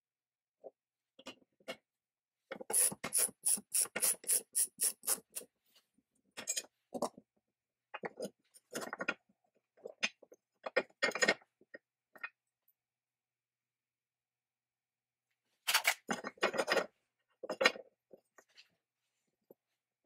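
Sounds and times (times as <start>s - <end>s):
socket ratchet wrench ratcheting: 2.7s - 5.4s.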